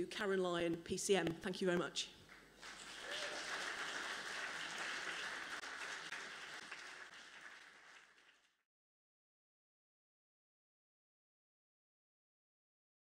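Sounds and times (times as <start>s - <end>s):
audience applauding: 2.3s - 8.6s.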